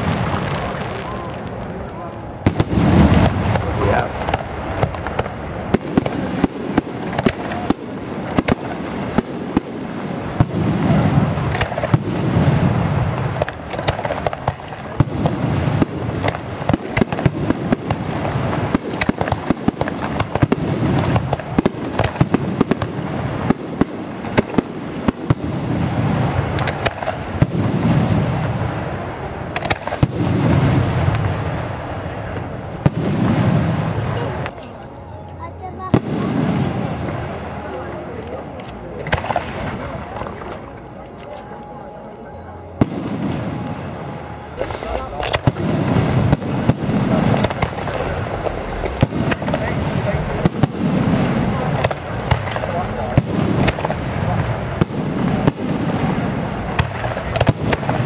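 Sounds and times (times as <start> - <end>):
firework shells cracking and banging: 0.0 - 28.6, 29.5 - 33.8, 44.6 - 58.0
deep rolling firework booms: 0.0 - 34.8, 35.8 - 38.2, 38.9 - 40.5, 42.7 - 58.0.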